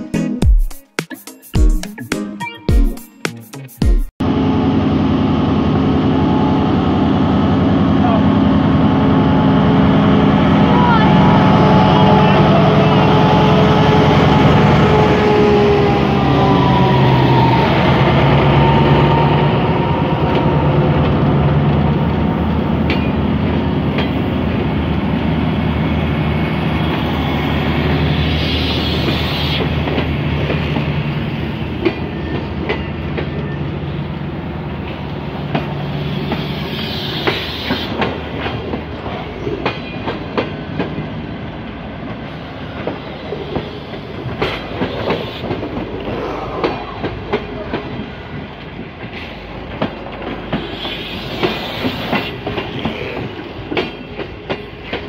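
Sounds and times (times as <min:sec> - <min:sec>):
diesel locomotive engine hum: 0:04.2 - 0:55.0
train wheels clicking over rail joints: 0:22.6 - 0:24.8, 0:28.3 - 0:33.6, 0:34.8 - 0:41.2, 0:42.0 - 0:55.0.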